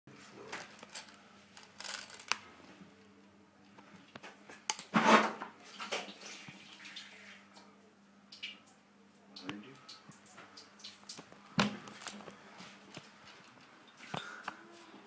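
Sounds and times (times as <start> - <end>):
handling clicks and rustles: 0.4 - 2.4.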